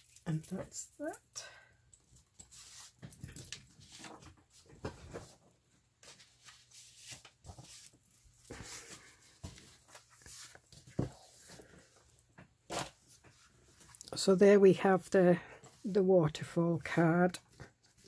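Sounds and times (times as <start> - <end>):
paper rustling and scraping: 2.4 - 12.0, 12.7 - 14.0.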